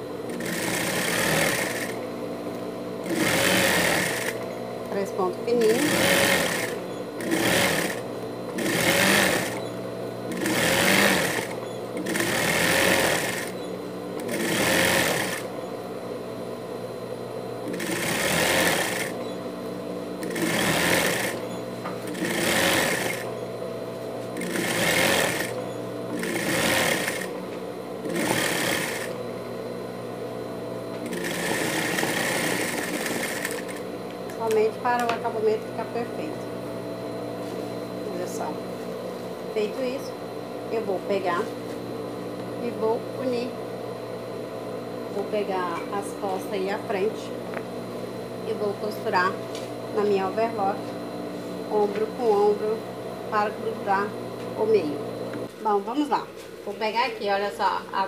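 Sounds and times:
sewing machine motor humming: 0.0s - 15.8s, 17.5s - 29.4s, 30.6s - 36.4s
sewing machine stitching: 0.3s - 2.0s, 3.0s - 4.4s, 5.6s - 9.7s, 10.3s - 13.6s, 14.2s - 15.5s, 17.6s - 19.3s, 20.2s - 23.3s, 24.3s - 27.4s, 28.0s - 29.2s, 31.0s - 33.8s.

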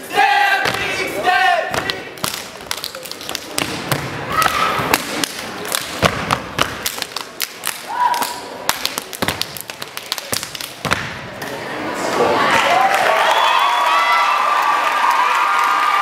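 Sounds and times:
hand claps and body slaps: 1.7s - 11.2s
people shouting: 4.2s - 5.1s, 7.8s - 8.5s
foot stomps: 8.7s - 11.3s.

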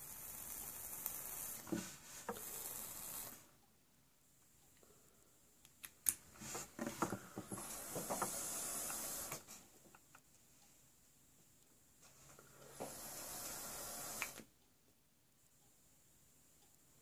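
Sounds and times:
atomizer coils sizzling: 0.0s - 3.6s, 7.3s - 9.8s, 12.1s - 14.5s.

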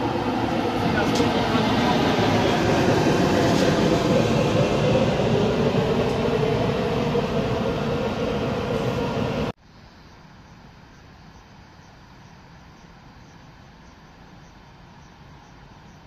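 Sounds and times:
train wheels rumbling on rail: 0.0s - 9.6s.

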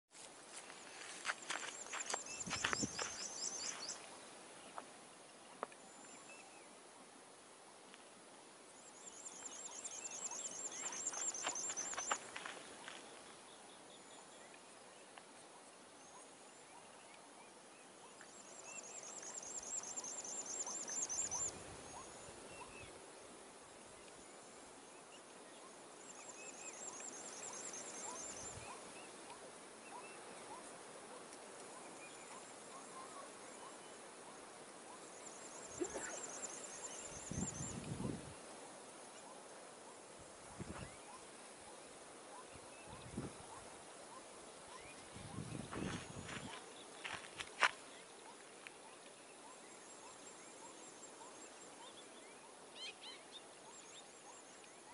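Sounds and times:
bird chirps: 1.0s - 4.2s, 8.8s - 13.6s.

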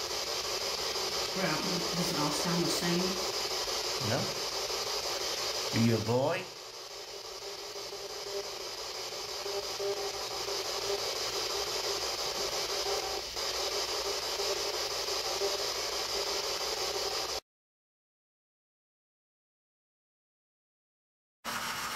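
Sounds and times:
choppy radio tones: 0.0s - 17.4s
radio static hiss: 0.0s - 17.4s.

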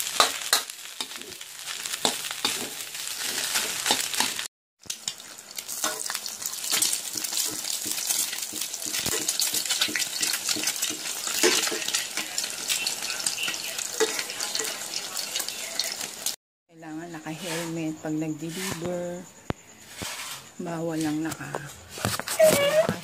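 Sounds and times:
metal utensil scraping a pan: 0.0s - 4.5s, 5.1s - 16.0s, 17.2s - 19.1s, 19.8s - 22.9s
egg sizzling in hot oil: 0.0s - 16.4s
rice frying in a wok: 0.0s - 16.4s.

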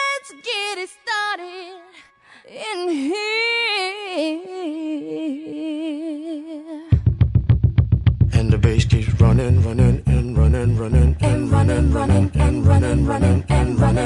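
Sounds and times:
person singing wordless notes: 8.4s - 14.0s.

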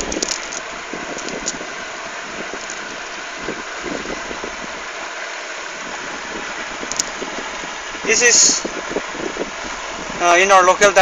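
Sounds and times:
fishing net rustling: 0.0s - 5.2s
steady rushing noise: 0.0s - 11.0s.

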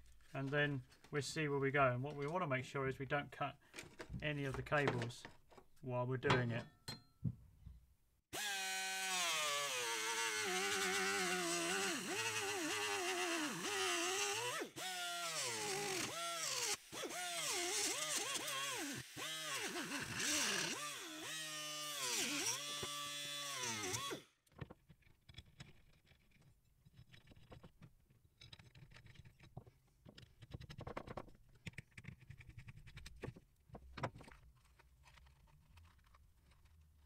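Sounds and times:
plastic parts clicking and knocking: 3.7s - 7.4s, 24.4s - 37.0s
power tool whining: 8.3s - 24.4s.

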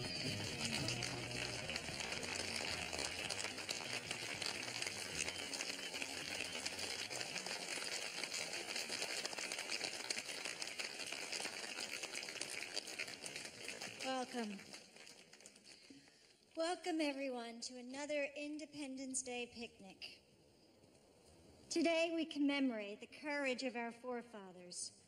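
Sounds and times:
crowd noise: 0.0s - 10.1s.

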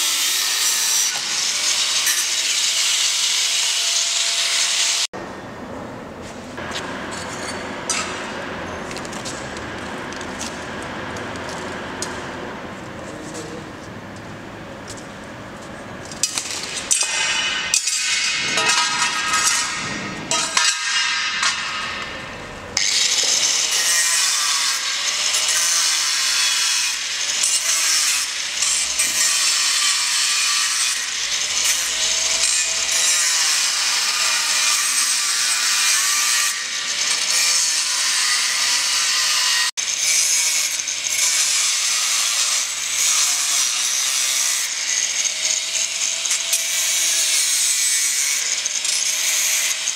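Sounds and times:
angle grinder cutting steel: 0.0s - 5.1s, 16.2s - 49.9s.

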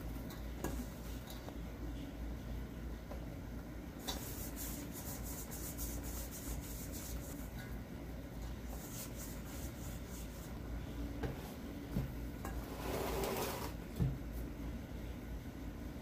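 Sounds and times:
hands kneading dough: 4.0s - 7.7s, 8.4s - 14.5s
bowl scraping on wooden table: 12.5s - 13.8s.

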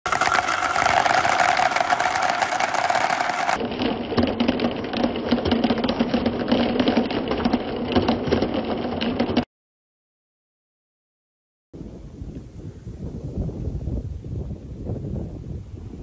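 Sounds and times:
marbles clicking together: 0.1s - 3.6s
marbles rolling in plastic bowl: 0.1s - 9.4s.

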